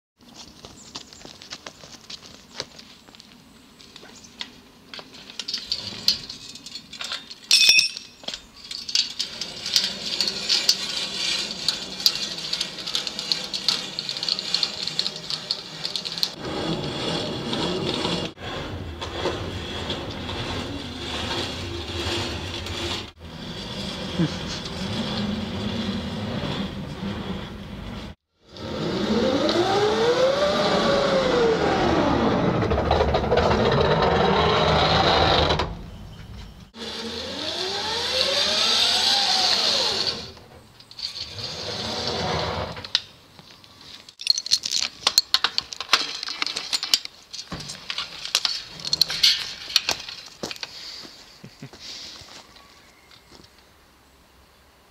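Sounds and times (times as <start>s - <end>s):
clicking and rattling: 5.2s - 16.4s, 44.0s - 50.7s
chain and pulley whirring: 5.4s - 35.7s, 36.8s - 42.7s.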